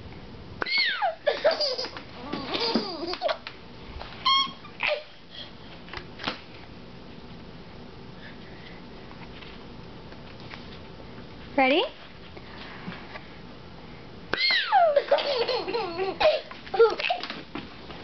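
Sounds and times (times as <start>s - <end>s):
baby laughing hysterically: 0.8s - 3.4s, 14.5s - 17.3s.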